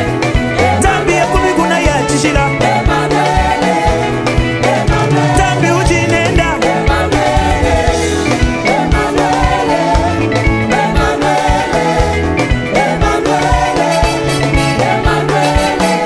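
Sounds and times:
drums: 0.0 - 16.0
live band dance music: 0.0 - 16.0
person singing: 0.6 - 3.9, 4.7 - 8.0.

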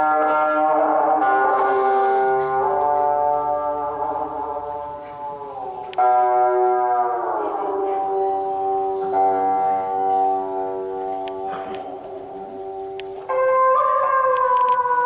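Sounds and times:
ensemble melody of sliding notes: 0.0 - 15.0.

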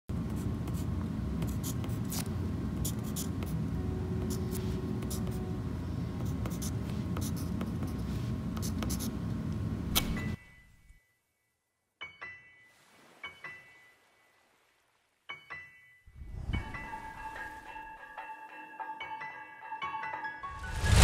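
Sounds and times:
pencil scratching on paper: 0.3 - 3.6, 6.2 - 9.2.

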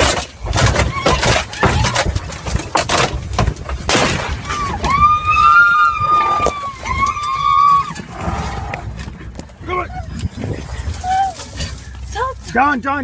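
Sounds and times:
crashes and bangs against a vehicle: 0.0 - 5.3.

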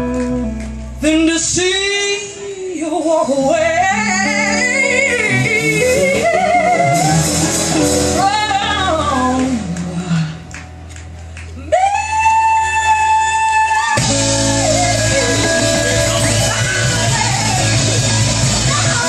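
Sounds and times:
drums: 0.0 - 19.0
electric guitars: 0.0 - 19.0
woman singing with vibrato: 1.0 - 10.5, 11.6 - 19.0.

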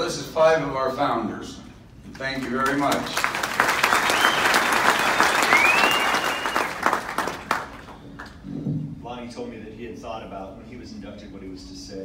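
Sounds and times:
audience applauding: 2.4 - 8.4.

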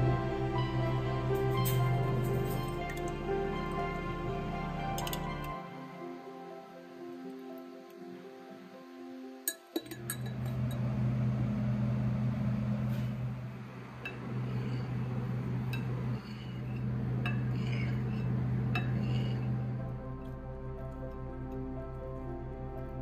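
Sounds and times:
background music: 0.0 - 23.0
glass and dishes clinking: 5.0 - 5.3, 9.5 - 10.8, 14.0 - 15.0, 15.7 - 19.6
low electrical hum of appliance: 10.0 - 23.0.

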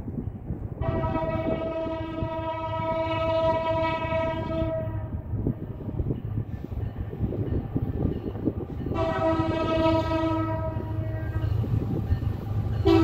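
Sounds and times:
train rumbling: 0.0 - 13.0
locomotive air horn blast: 0.8 - 5.2, 9.0 - 11.5.

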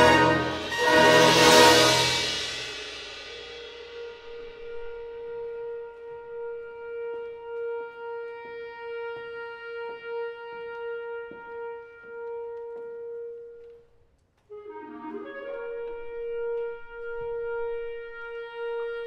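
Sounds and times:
solo clarinet: 3.9 - 19.0.

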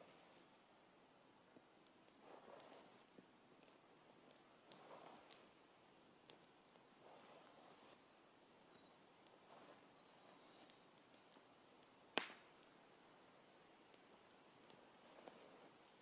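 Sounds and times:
faint ticks: 1.5 - 5.6, 6.2 - 8.0, 8.7 - 12.8, 13.9 - 16.0.

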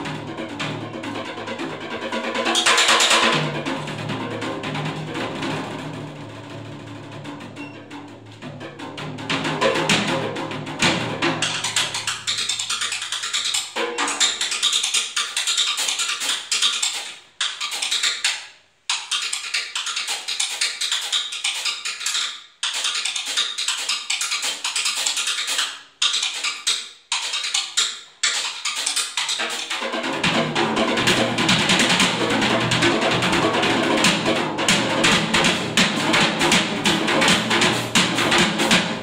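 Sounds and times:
bass: 0.0 - 12.4, 29.9 - 39.0
drum kit playing jazz: 0.0 - 12.8, 29.3 - 39.0.

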